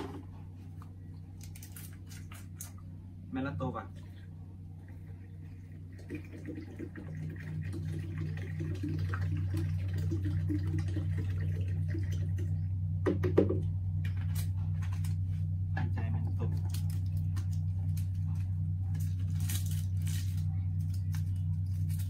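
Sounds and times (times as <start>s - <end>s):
pulsing low machine hum: 0.0s - 22.0s
liquid glugging into a jerrycan: 4.9s - 12.5s.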